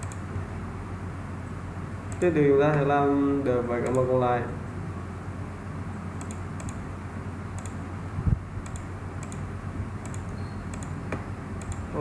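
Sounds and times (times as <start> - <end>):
computer mouse clicks: 0.0 - 0.2, 3.8 - 4.1, 6.2 - 6.8, 7.6 - 7.8, 8.6 - 11.0, 11.6 - 11.9
steady low hum: 0.0 - 12.0.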